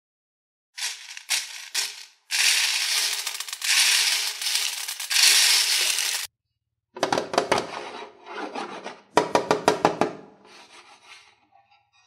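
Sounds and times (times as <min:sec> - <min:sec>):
plastic beads rattling: 0:00.8 - 0:06.3.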